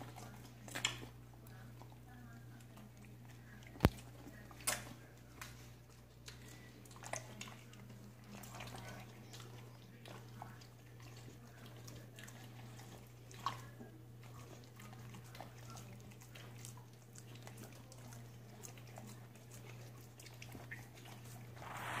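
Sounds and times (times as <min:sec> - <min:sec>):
steady low hum: 0:21.5 - 0:22.0.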